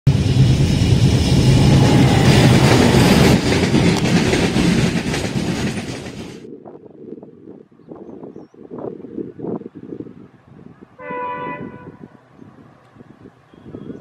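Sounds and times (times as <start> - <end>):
train engine drone: 0.1 - 6.6
wheels clattering on rails: 0.2 - 6.5.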